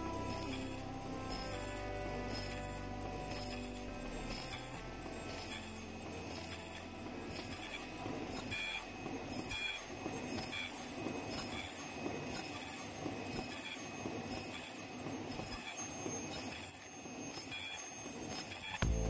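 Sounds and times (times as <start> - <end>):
short high-pitched tones: 0.0 - 11.2
high whine: 0.0 - 11.4
machine mechanical clatter: 4.2 - 19.0.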